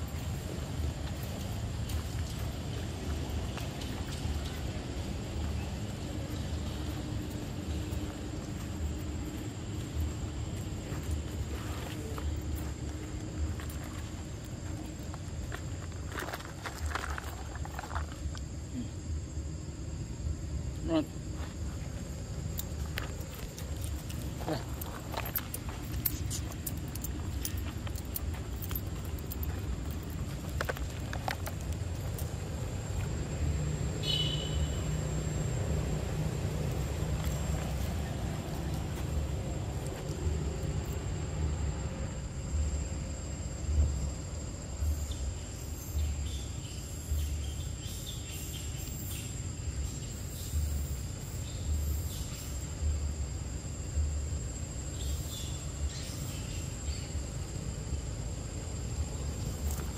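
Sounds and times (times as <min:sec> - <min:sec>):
high insect drone: 0:00.0 - 0:59.9
leaves crackling underfoot: 0:21.5 - 0:41.1.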